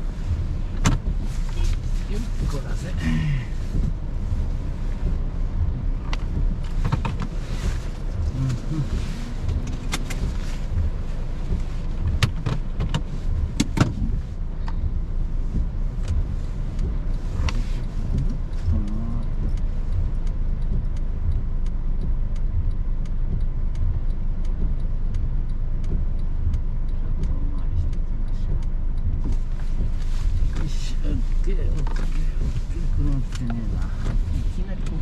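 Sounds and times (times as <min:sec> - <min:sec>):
car engine and road noise: 0:00.0 - 0:35.0
faint regular ticking: 0:00.0 - 0:35.0
rain hissing on car: 0:00.0 - 0:35.0.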